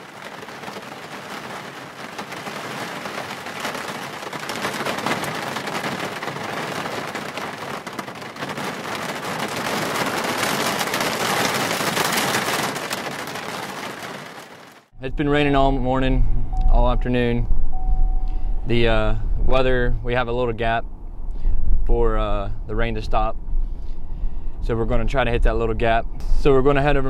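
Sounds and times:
steady rain falling: 0.0 - 14.9.

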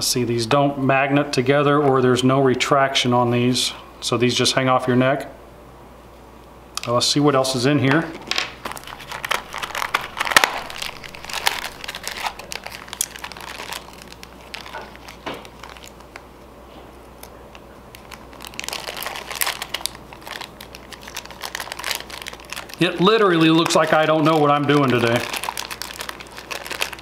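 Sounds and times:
plastic bag crinkling: 8.0 - 16.4, 17.0 - 27.0.

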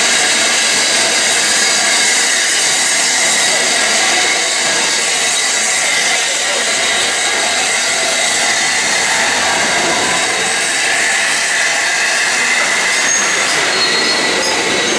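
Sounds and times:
train coaches rolling past: 0.0 - 14.9.

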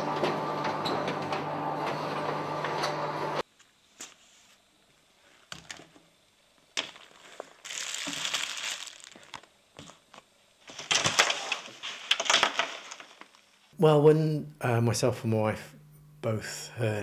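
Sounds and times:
fabric and packaging rustling: 6.8 - 13.7.

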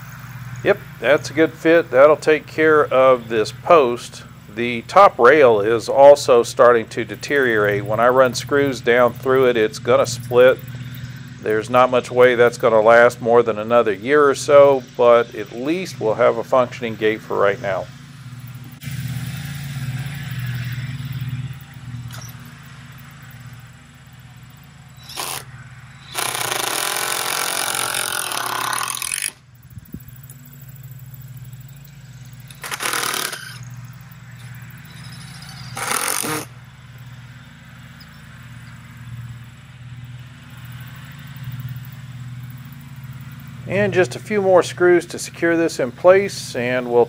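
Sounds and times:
steady low hum: 0.0 - 47.0
power drill driving screws: 25.0 - 29.4, 32.5 - 33.7, 34.9 - 36.5.

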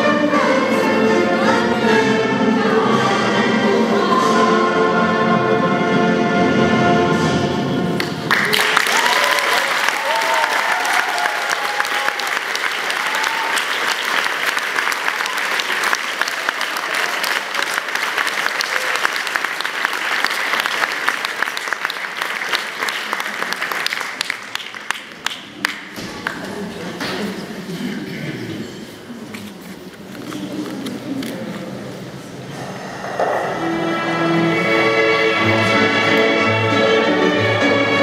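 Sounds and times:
choral music: 0.0 - 8.3, 32.3 - 38.0
audience applause: 8.0 - 26.5.

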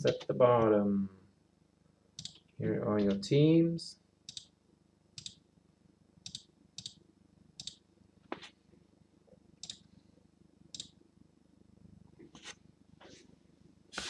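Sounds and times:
faint low hum: 0.0 - 14.0
computer mouse clicks: 2.2 - 3.2, 4.3 - 4.5, 5.2 - 5.4, 6.2 - 7.0, 7.6 - 7.8, 9.6 - 9.8, 10.7 - 11.0.

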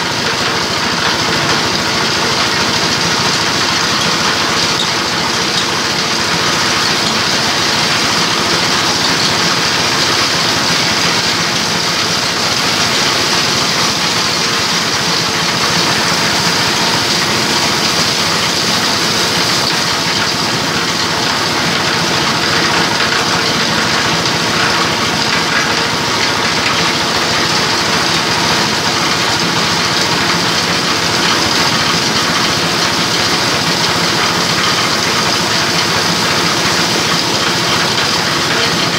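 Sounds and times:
diesel engine running: 0.0 - 38.9.

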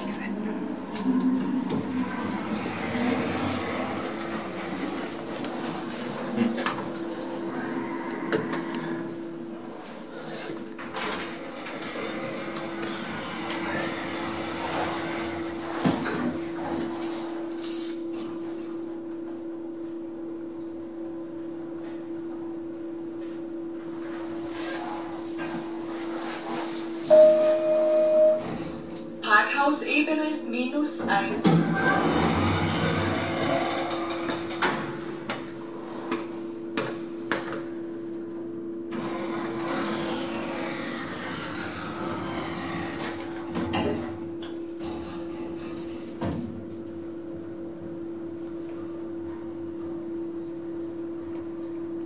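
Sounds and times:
lift car humming: 0.0 - 17.6, 24.0 - 36.2, 38.9 - 45.7.

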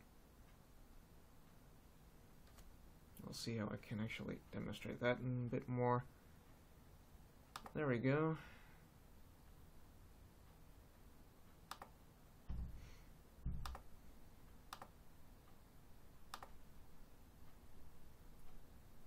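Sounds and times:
dull low thumps: 12.5 - 12.8, 13.4 - 13.8.

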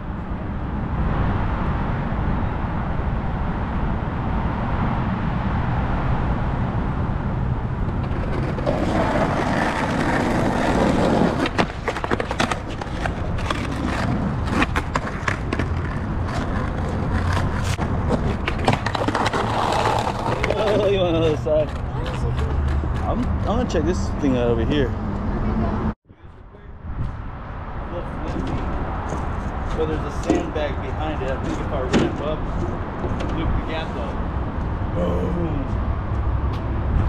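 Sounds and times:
skateboard wheels rolling: 7.6 - 23.1
skateboard clacks and knocks: 7.9 - 23.0.

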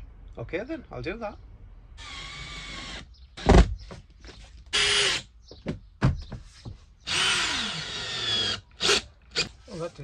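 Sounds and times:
power drill driving screws: 2.0 - 3.7, 4.7 - 5.3, 7.1 - 9.6.

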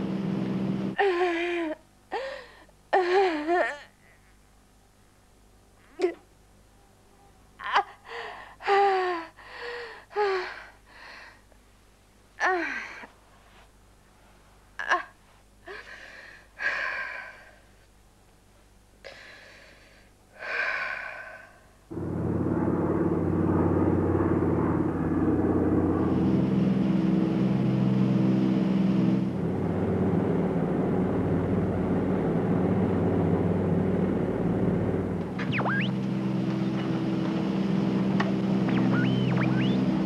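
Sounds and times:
propeller plane engines droning: 0.0 - 1.0, 21.9 - 40.0
woman gasping breaths: 2.1 - 2.7, 8.0 - 11.4, 15.6 - 17.7, 19.1 - 21.7.

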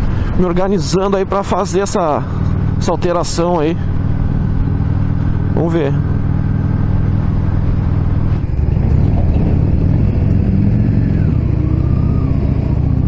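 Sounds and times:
motorcycle engine running: 2.0 - 13.0.

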